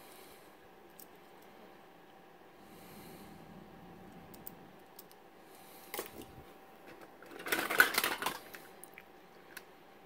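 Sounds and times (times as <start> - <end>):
toys clattering into bin: 6.9 - 8.6.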